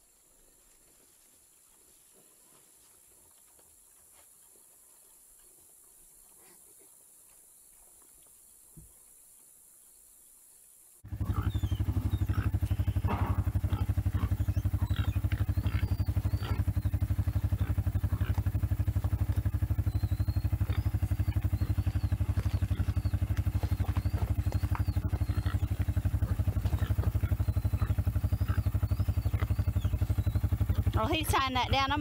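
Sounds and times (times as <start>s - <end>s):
quad bike engine idling: 11.0s - 32.0s.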